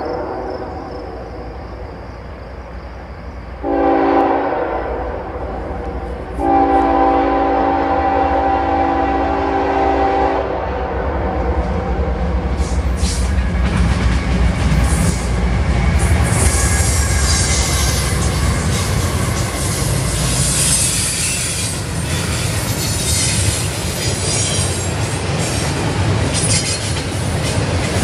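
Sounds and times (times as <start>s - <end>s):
locomotive air horn: 3.6s - 5.3s, 6.4s - 11.4s
high wheel squeals: 16.4s - 24.8s.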